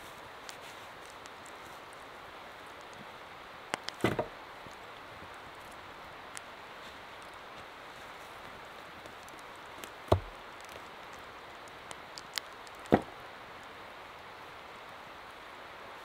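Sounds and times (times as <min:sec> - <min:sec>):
background hiss: 0:00.0 - 0:16.0
heavy strikes on wood: 0:04.0 - 0:04.3, 0:10.1 - 0:10.4, 0:12.9 - 0:13.2.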